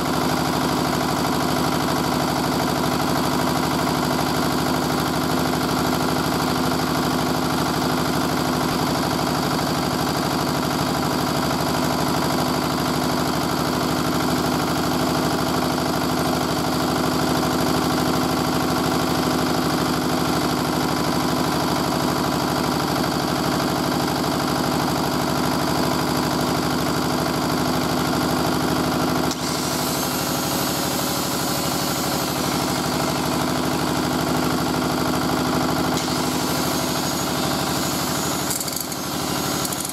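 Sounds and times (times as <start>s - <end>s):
diesel engine running: 24.1s - 39.9s
angle grinder whine: 26.0s - 39.9s.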